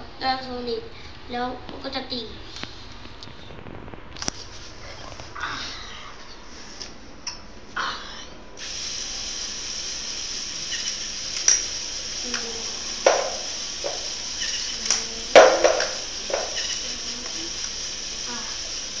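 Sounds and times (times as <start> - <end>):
steady hiss: 8.6 - 19.0.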